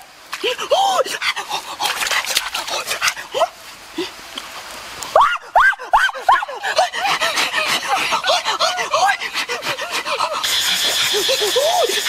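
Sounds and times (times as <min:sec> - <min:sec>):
steady high hiss: 0:02.8 - 0:12.0.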